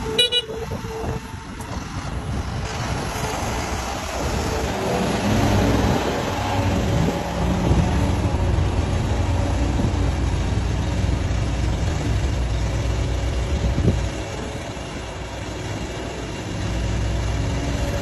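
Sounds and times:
excavator diesel engine drone: 0.0s - 18.0s.

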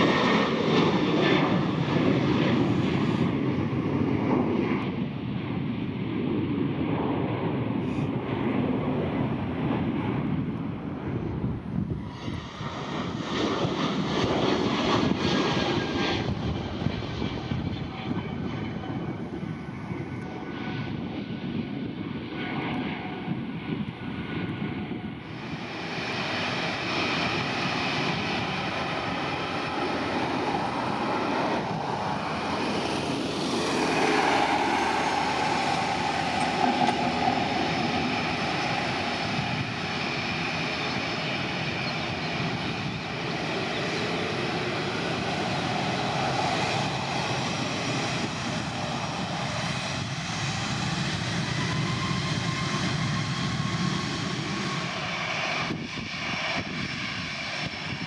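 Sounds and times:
jet engine rumble and whine: 0.0s - 58.0s.

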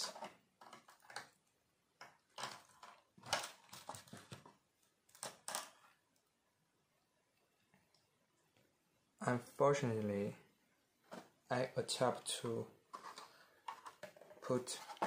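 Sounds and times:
plastic parts clicking and rattling: 0.0s - 1.4s, 2.0s - 6.0s, 12.9s - 15.0s.

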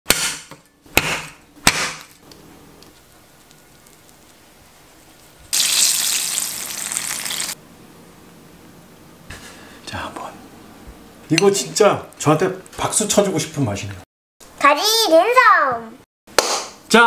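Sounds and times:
cleaver chopping on wooden board: 0.1s - 2.2s
food sizzling in hot oil: 5.5s - 7.6s.

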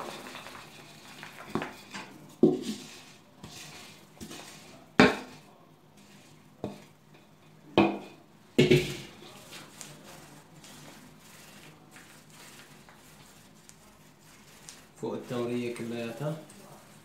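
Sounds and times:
nuts sliding onto metal tray: 0.0s - 6.9s
wooden spoon scraping metal pot: 0.0s - 17.0s.

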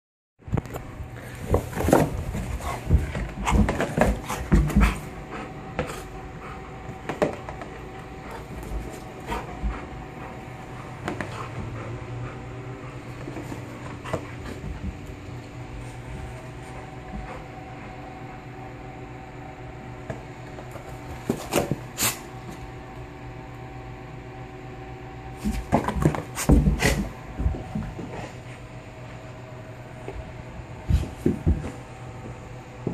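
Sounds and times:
mechanical hum: 0.4s - 32.9s
dog panting: 2.6s - 7.1s, 8.1s - 14.9s.

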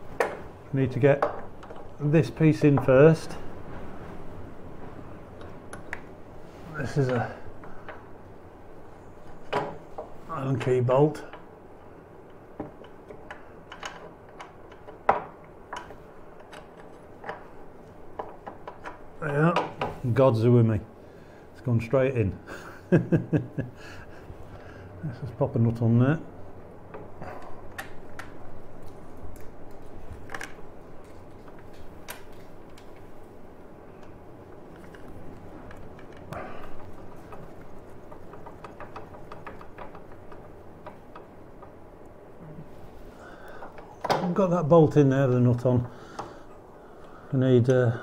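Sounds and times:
low steady hum: 0.0s - 48.0s
nut threading clicks: 12.2s - 20.0s, 34.0s - 42.2s.

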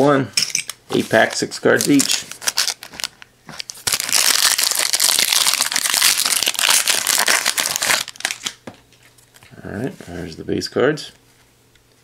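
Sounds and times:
foil wrapper crinkling: 1.1s - 8.6s.

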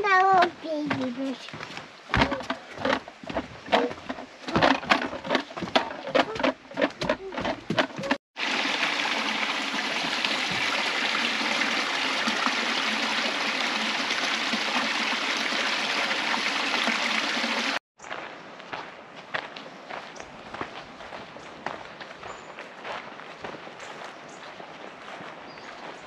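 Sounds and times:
footsteps on wooden planks: 0.0s - 8.2s, 18.1s - 26.0s
creek water rushing over stones: 0.4s - 17.8s.

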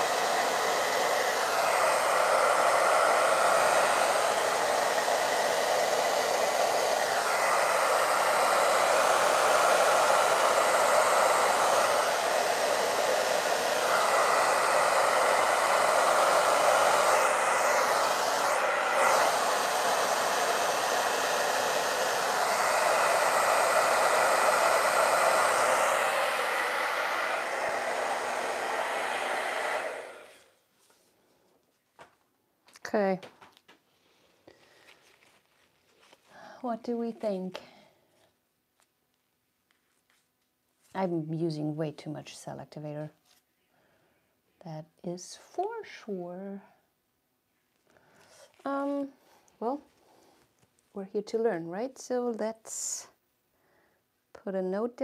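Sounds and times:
hair dryer running: 0.0s - 30.6s.

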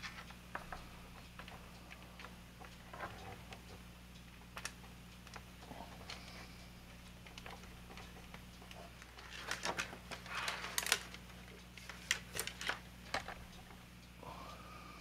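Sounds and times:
steady low hum: 0.0s - 15.0s
plastic parts clicking and rustling: 7.3s - 13.4s.

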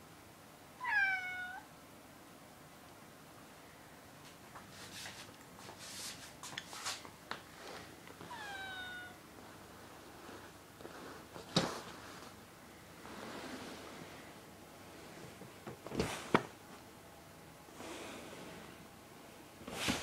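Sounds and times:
cat meowing: 0.8s - 1.7s, 8.3s - 9.2s
scuffles and scrapes on sofa: 4.6s - 7.9s, 9.4s - 12.4s.

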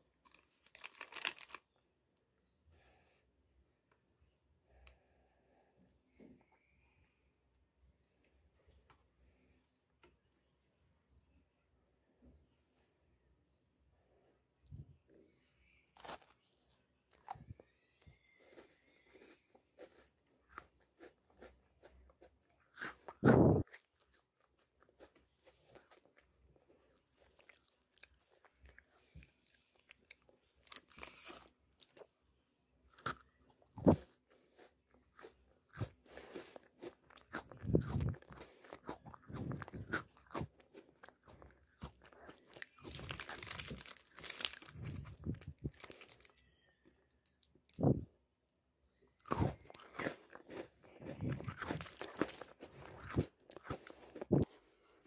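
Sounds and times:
cookie crunching: 0.1s - 2.2s, 15.9s - 32.2s, 32.9s - 47.5s, 49.2s - 54.7s
plastic packet crinkling: 0.2s - 1.7s, 42.5s - 46.4s, 51.3s - 53.0s.

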